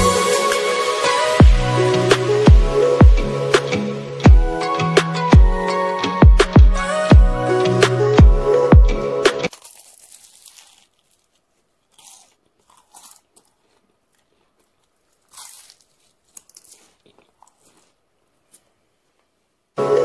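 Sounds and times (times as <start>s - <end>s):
pastry crunching under fork: 9.5s - 18.7s.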